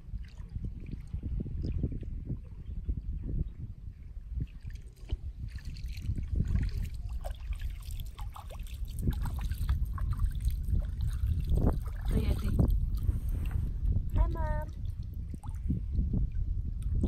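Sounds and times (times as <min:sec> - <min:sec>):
kayak paddle splashing: 0:04.6 - 0:13.6
steady low rumble: 0:05.2 - 0:17.0.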